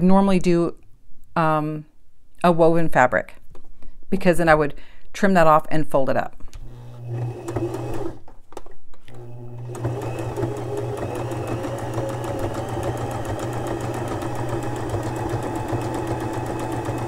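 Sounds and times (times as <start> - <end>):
sewing machine stitching: 6.6 - 8.3, 9.1 - 17.0.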